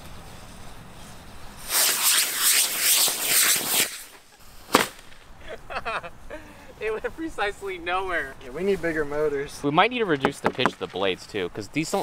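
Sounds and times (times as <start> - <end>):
rocket motor rushing hiss: 1.6 - 5.2
sharp pop: 1.7 - 5.3.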